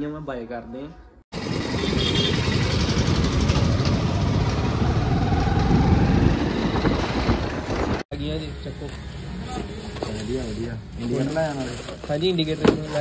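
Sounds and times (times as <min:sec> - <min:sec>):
motorcycle engine running: 0:01.4 - 0:07.2
wind rumble on microphone: 0:02.8 - 0:08.0.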